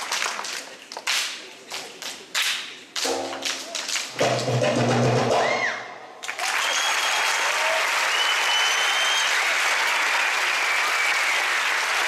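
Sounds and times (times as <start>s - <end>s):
audience applauding: 0.0s - 2.0s, 6.2s - 12.0s
drumming: 3.0s - 5.9s.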